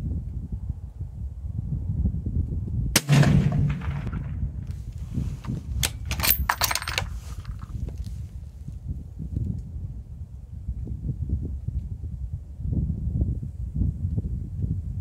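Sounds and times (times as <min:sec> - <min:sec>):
wind noise on microphone: 0:00.0 - 0:15.0
suppressed rifle shot: 0:03.0 - 0:04.8
sharp cracks: 0:03.0 - 0:05.0.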